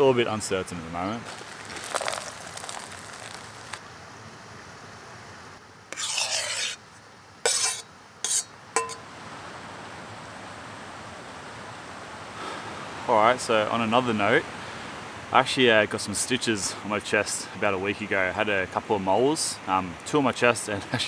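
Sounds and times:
muesli pouring onto metal plate: 1.3s - 3.8s
fruit scraping out of bowl: 5.9s - 6.9s, 7.5s - 8.5s
light metallic clink: 8.8s - 9.0s.

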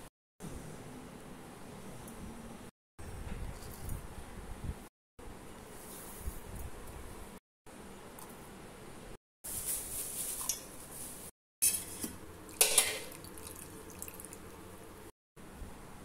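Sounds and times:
water pouring into steel jar: 12.5s - 14.5s.

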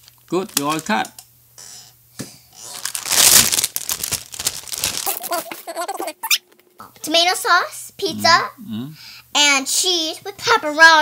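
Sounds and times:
plastic bag crinkling: 2.6s - 6.7s.

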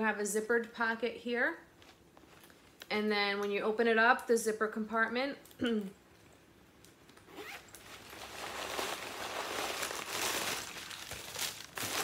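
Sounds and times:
wrapping paper rustling: 7.4s - 12.0s.

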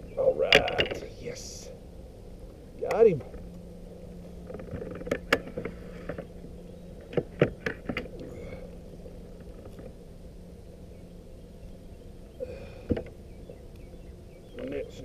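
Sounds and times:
low steady hum: 0.0s - 15.0s
knocks and rattles on kayak: 4.4s - 6.3s, 7.0s - 8.2s, 12.8s - 13.2s.

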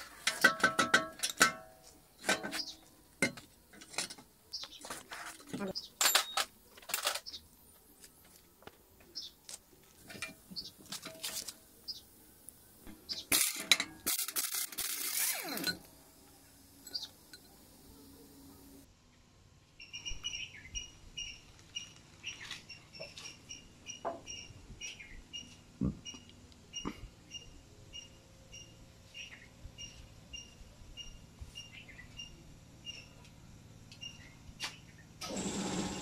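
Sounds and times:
metal scraping: 0.0s - 4.2s
metal parts clinking on concrete: 0.0s - 4.3s, 4.9s - 7.4s, 13.1s - 16.0s, 16.8s - 17.6s.

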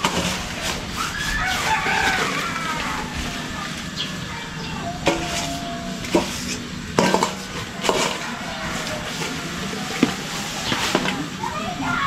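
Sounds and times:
plastic dipper clanking on metal basin: 6.0s - 8.3s.

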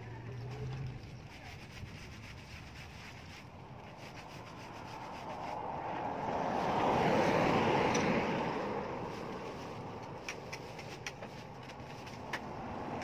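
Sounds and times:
car passing: 3.4s - 13.0s.

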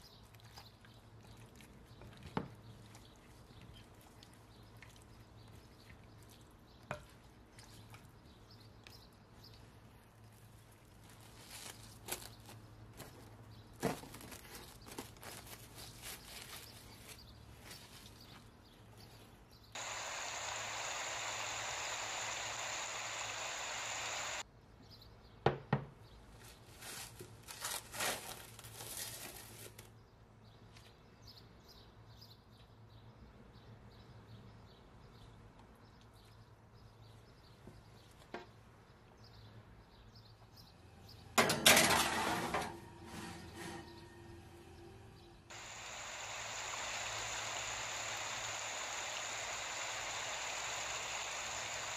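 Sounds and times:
cling film crinkling: 10.3s - 13.2s, 13.8s - 18.1s, 26.7s - 29.9s
steady hiss: 19.8s - 24.4s, 45.5s - 51.9s.

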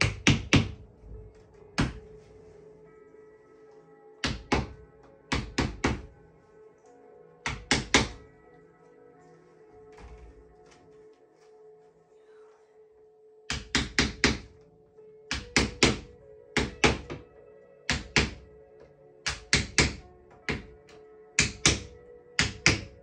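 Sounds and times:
wooden mallet knocking wedge: 1.8s - 2.1s, 4.2s - 6.1s, 13.5s - 14.5s.

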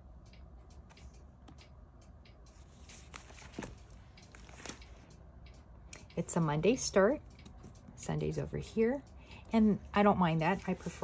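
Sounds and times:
paper rustling: 2.8s - 5.0s.

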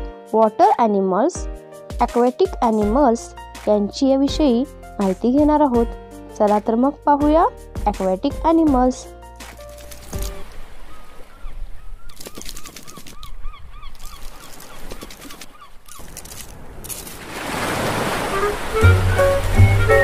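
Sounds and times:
music: 0.0s - 10.5s, 18.3s - 20.0s
surf washing in: 16.5s - 20.0s.

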